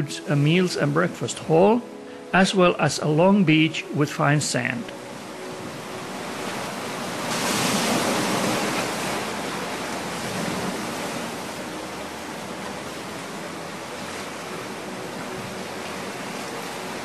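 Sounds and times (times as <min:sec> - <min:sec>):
small waves breaking on shore: 0:04.2 - 0:17.0.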